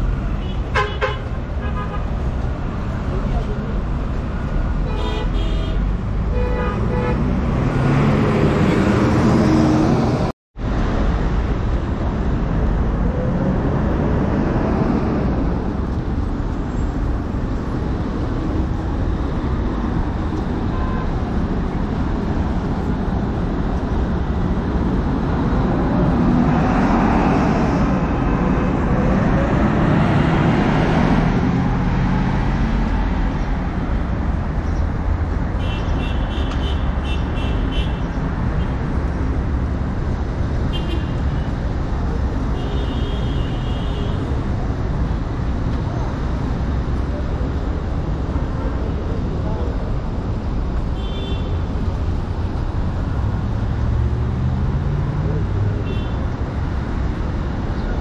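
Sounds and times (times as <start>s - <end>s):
hum of road traffic: 0.0s - 58.0s.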